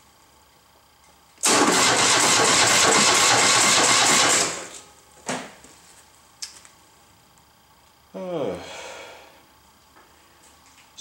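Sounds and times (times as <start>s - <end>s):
electric starter cranking engine: 1.4s - 4.8s.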